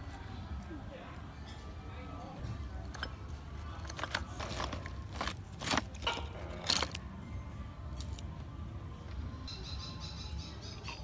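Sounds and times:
oyster shells clacking and scraping: 2.7 - 7.2, 8.0 - 8.3.

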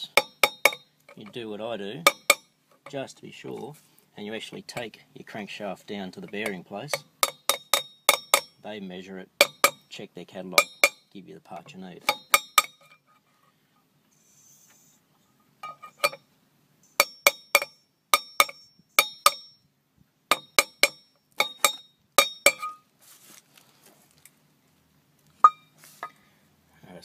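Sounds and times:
mallet tapping metal: 0.0 - 1.4, 2.0 - 2.5, 6.2 - 8.6, 9.4 - 9.9, 10.6 - 11.1, 12.0 - 12.8, 17.0 - 19.6, 20.3 - 22.8.

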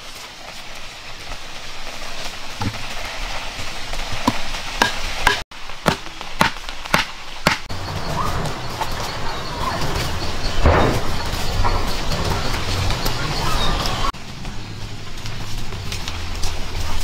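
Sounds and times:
wood striking wood: 2.6 - 2.9, 4.2 - 7.7.

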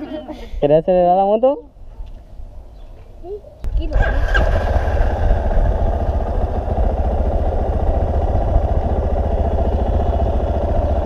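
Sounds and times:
motorcycle engine idling: 3.7 - 11.0.

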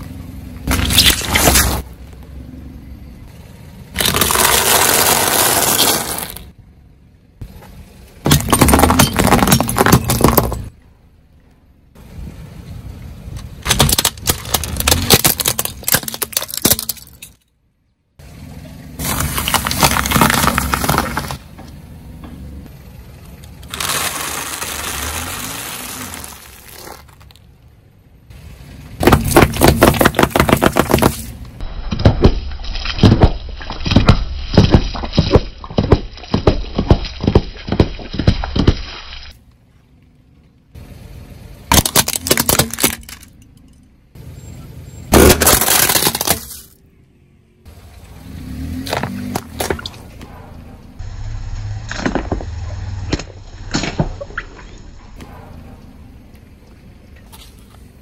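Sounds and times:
car tyre crushing objects: 0.0 - 2.3, 3.8 - 6.6, 7.4 - 10.8, 13.3 - 17.7, 18.9 - 22.5, 23.1 - 39.8, 41.5 - 43.8, 45.1 - 46.9, 47.6 - 55.8
cracking and snapping: 4.0 - 6.4, 13.6 - 17.3, 19.0 - 21.4, 41.7 - 43.4, 45.2 - 46.8.

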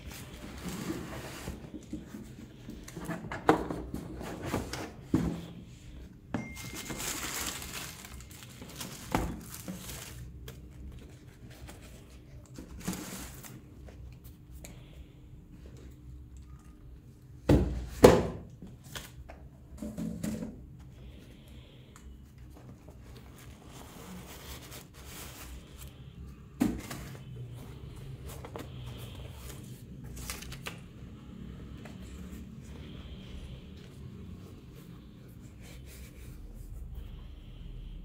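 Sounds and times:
shoes and packaging rustling: 6.4 - 14.0, 22.5 - 30.9.

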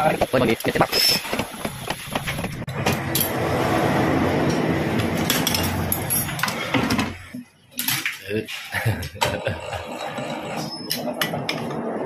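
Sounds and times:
lathe tool scraping metal: 9.5 - 11.2.

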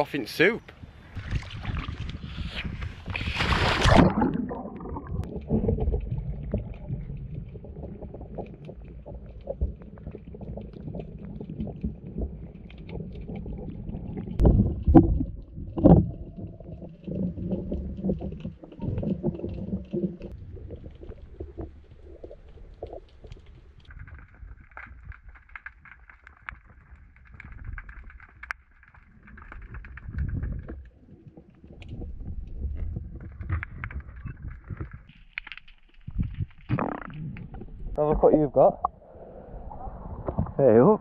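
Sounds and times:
muffled underwater rumble: 0.9 - 35.1, 36.0 - 41.0
splashing into water: 1.2 - 12.0.

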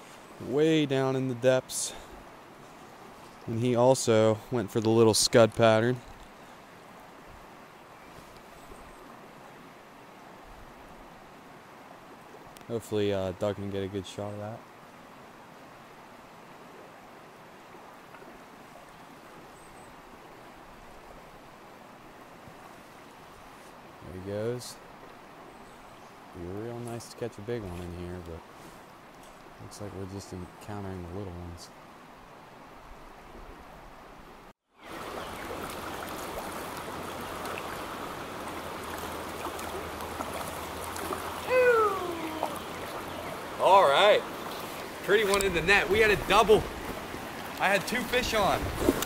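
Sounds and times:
stream flowing over streambed: 0.0 - 30.0, 30.9 - 49.0
stream flowing over rocks: 31.8 - 49.0
man's short vocal sound: 41.4 - 42.6.

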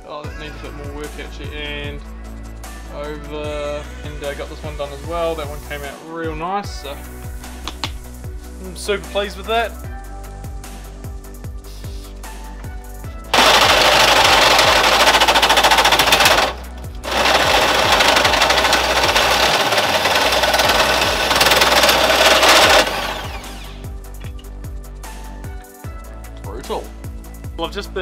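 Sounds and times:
hole saw cutting steel tube: 13.3 - 23.9.

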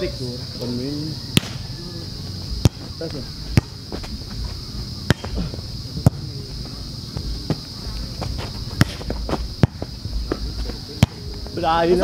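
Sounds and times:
high-pitched insect drone: 0.0 - 12.0
volleyball hand slaps: 1.4 - 1.7, 5.1 - 5.4, 8.8 - 10.4, 11.0 - 11.2.

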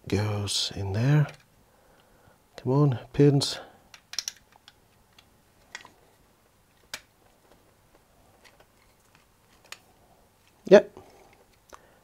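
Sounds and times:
circuit board clicking into metal case: 4.0 - 5.9.

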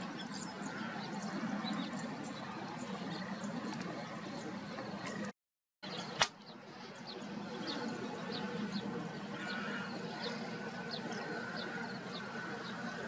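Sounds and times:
sharp click: 6.2 - 6.5.

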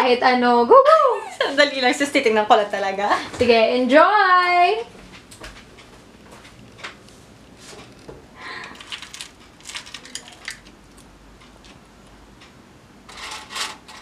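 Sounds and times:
metal jewelry clinking and rattling: 8.7 - 11.0.

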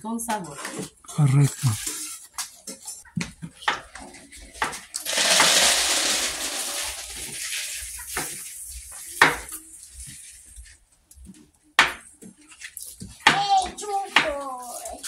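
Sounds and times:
loud hissing noise: 5.1 - 7.7.

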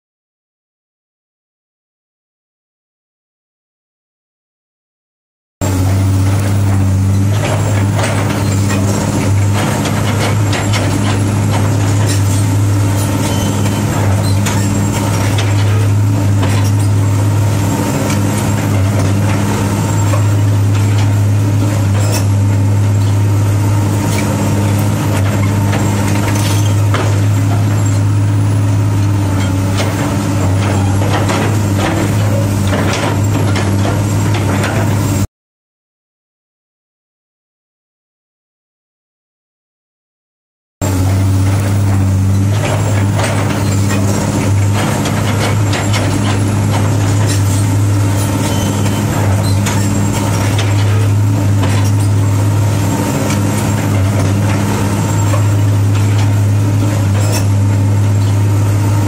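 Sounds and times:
excavator diesel engine humming: 5.6 - 35.3, 40.8 - 59.0
machine clanks and clicks: 6.3 - 17.0, 29.4 - 35.0, 41.0 - 52.2, 53.2 - 58.4.

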